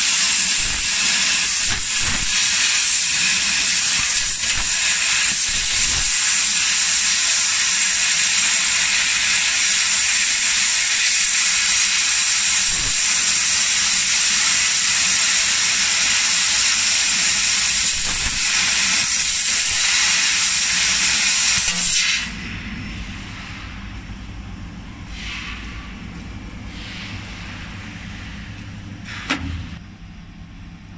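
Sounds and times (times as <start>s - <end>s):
hiss of gas from laser nozzle: 0.0s - 22.3s
low machine hum: 22.3s - 30.9s.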